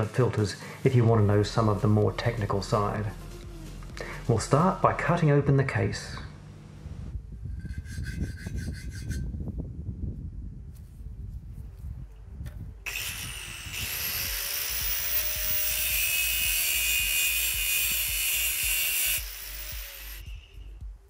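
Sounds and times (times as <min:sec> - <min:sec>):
power tool cutting metal: 0:12.9 - 0:20.6.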